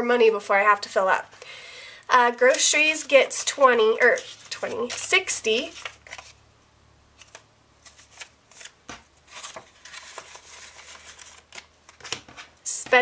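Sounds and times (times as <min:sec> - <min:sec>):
banknotes rustling: 0:02.3 - 0:06.4, 0:07.2 - 0:13.0.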